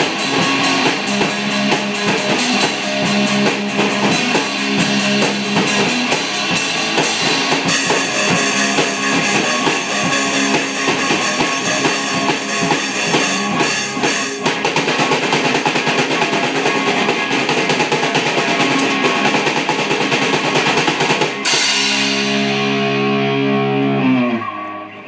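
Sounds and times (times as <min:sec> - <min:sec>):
child drumming on drum kit: 0:00.0 - 0:22.8
rock music with guitar: 0:00.0 - 0:25.0
cymbal crash: 0:21.4 - 0:23.8.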